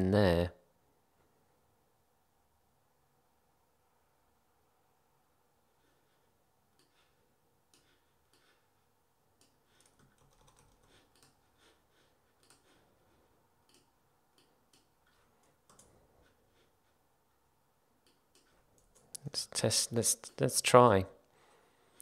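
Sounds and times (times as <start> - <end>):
typing on a computer keyboard: 9.7 - 11.4, 13.6 - 16.0.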